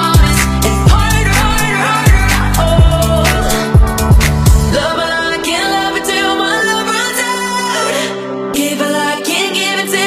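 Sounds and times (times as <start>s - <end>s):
person singing: 0.0s - 10.0s
deep bass drum hits: 0.9s - 7.0s.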